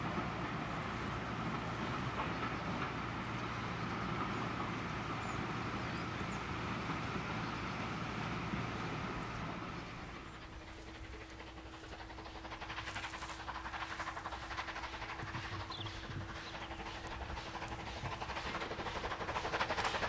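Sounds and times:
distant steam train rumbling: 0.0s - 20.0s
birds chirping: 8.7s - 20.0s.

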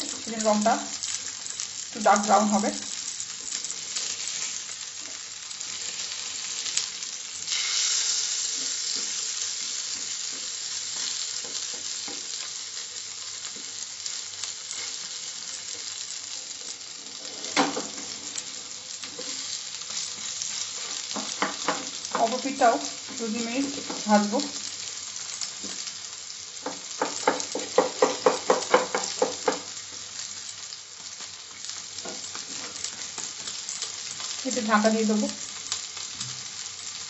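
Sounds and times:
fish sizzling in hot oil: 0.0s - 37.0s
spatula knocking against pan: 26.6s - 29.7s.

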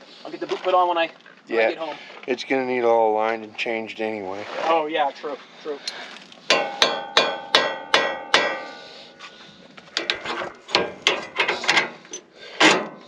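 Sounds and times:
hammer striking steel: 6.5s - 8.9s.

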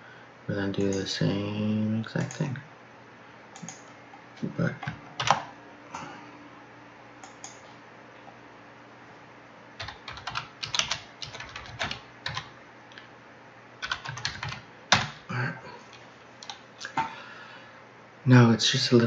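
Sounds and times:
keyboard typing: 4.7s - 5.5s, 7.2s - 7.6s, 9.8s - 12.5s, 13.8s - 15.2s.

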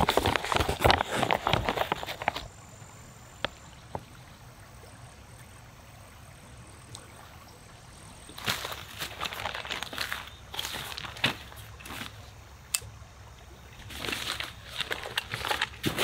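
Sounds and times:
footsteps crunching on cobbles: 0.0s - 2.5s, 8.3s - 12.3s, 13.8s - 16.0s
plastic pouch crinkling: 8.4s - 12.2s, 13.9s - 16.0s.

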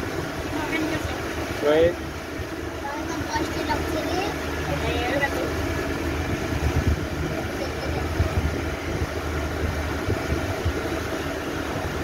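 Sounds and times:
motorboat engine running: 0.0s - 12.0s
water along hull: 0.0s - 12.0s.

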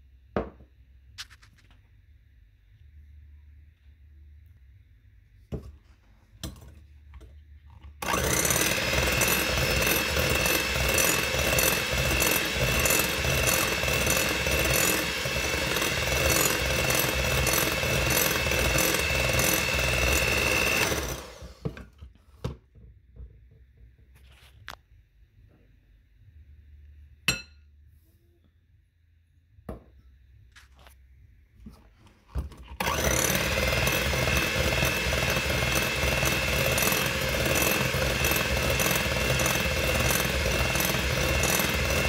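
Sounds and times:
electric hand mixer whining: 8.0s - 21.9s, 32.8s - 42.0s.

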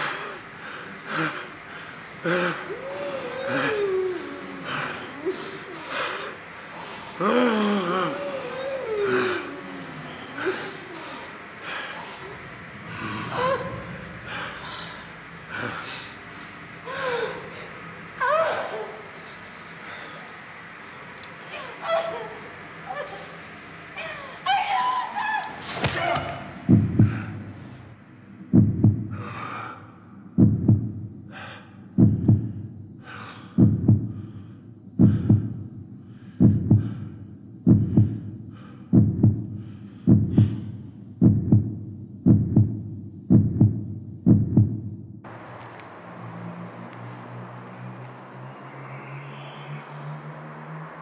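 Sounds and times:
person breathing: 0.0s - 18.0s, 26.7s - 28.0s, 28.9s - 41.2s
heartbeat thumps: 26.7s - 27.7s, 28.4s - 29.4s, 30.4s - 31.4s, 32.0s - 33.0s, 33.6s - 34.4s, 35.0s - 35.8s, 36.4s - 45.2s
person gasping and breathing hard: 26.7s - 27.9s, 31.3s - 40.9s.

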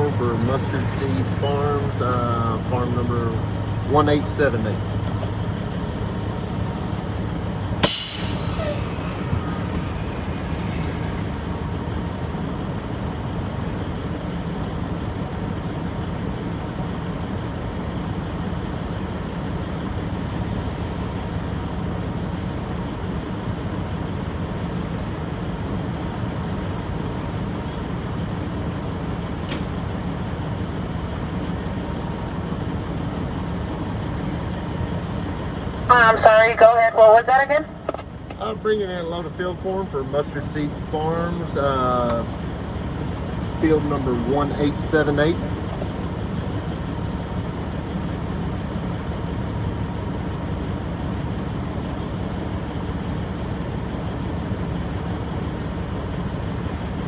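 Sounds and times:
diesel truck engine idling: 0.0s - 57.0s
short sharp burst of noise: 7.8s - 11.6s.

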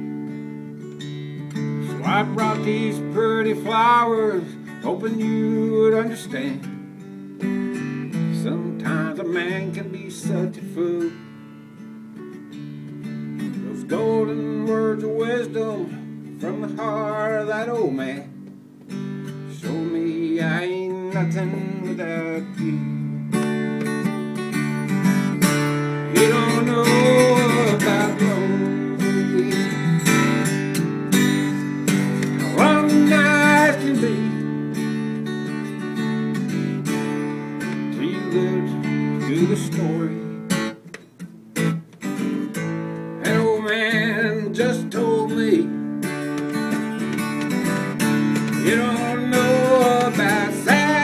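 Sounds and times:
acoustic guitar strummed: 0.0s - 51.0s
man singing: 1.8s - 6.8s, 8.1s - 11.3s, 13.5s - 18.4s, 19.5s - 23.1s, 25.8s - 30.5s, 31.3s - 35.0s, 37.6s - 40.8s, 43.2s - 45.9s, 47.6s - 51.0s.

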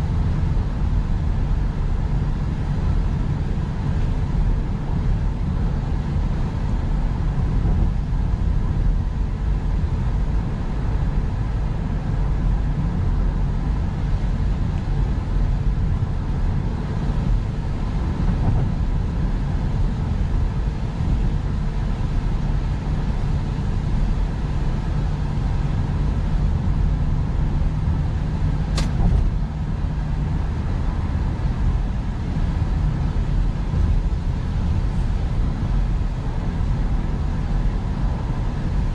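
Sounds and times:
car road and engine noise: 0.0s - 38.9s
sharp click: 28.7s - 29.3s.

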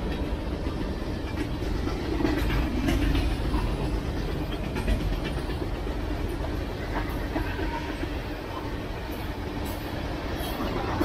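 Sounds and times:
sharp clacks of rails: 0.0s - 8.2s
train wheels rumbling on rails: 0.0s - 11.0s.

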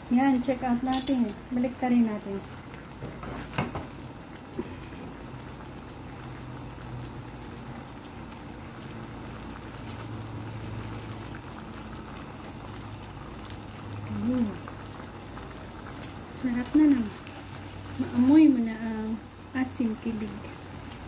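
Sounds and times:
liquid simmering in a pan: 0.0s - 21.0s
metal tongs clicking on pan: 0.8s - 1.4s.

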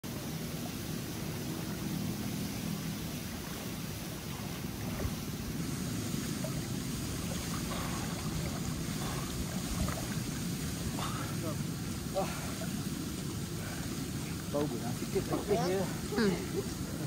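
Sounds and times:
pool water sloshing: 0.0s - 17.0s
steady low rush: 0.0s - 17.0s
faint small splashes: 0.6s - 17.0s.

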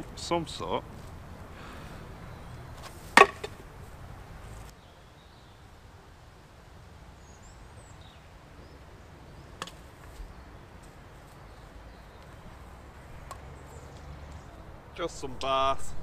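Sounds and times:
sharp knock: 3.2s - 3.6s.

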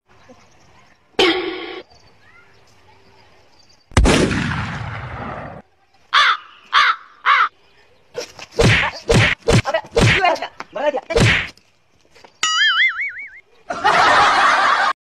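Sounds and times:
crow cawing: 6.1s - 7.6s.

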